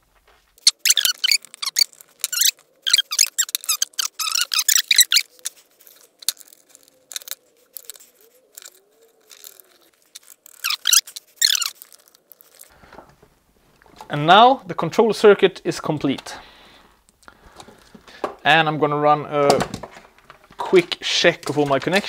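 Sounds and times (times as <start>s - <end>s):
faint squeak: 0.6s - 12.7s
screwdriver scraping and clicking: 0.6s - 12.7s.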